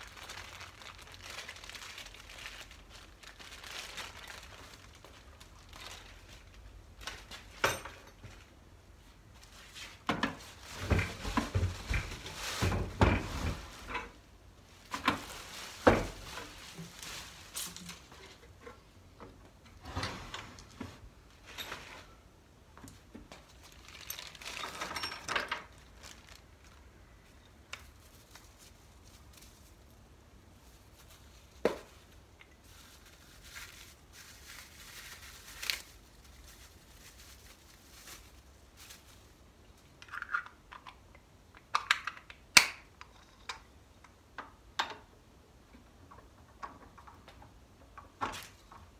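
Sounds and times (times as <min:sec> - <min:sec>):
plastic wrapping rustling: 0:00.0 - 0:18.8, 0:22.9 - 0:39.7.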